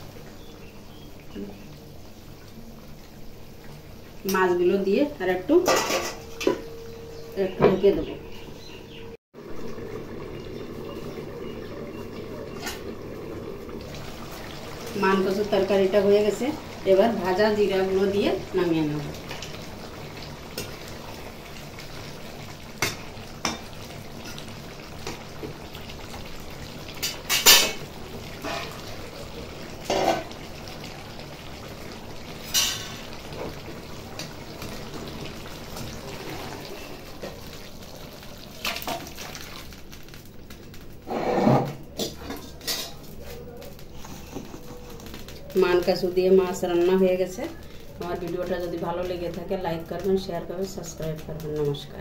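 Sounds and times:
metal spoon clinking on metal pans: 5.6 - 6.6, 27.0 - 27.8, 32.5 - 33.1, 42.0 - 43.0.

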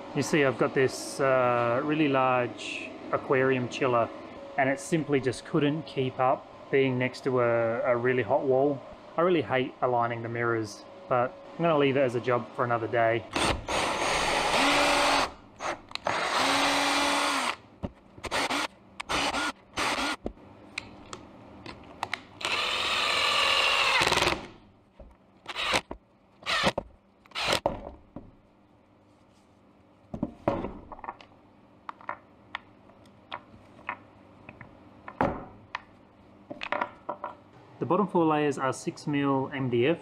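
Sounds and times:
cordless drill running in bursts: 13.4 - 17.6, 18.3 - 20.2, 22.4 - 24.4.

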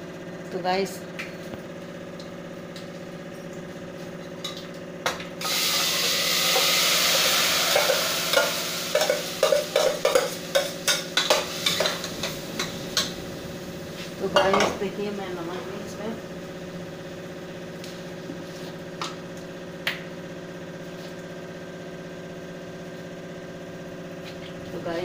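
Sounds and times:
food sizzling in hot oil: 5.4 - 18.2.

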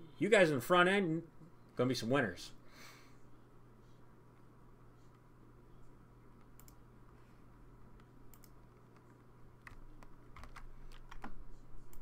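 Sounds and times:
low steady hum: 0.0 - 12.0
mouse and keyboard clicks: 8.0 - 12.0.

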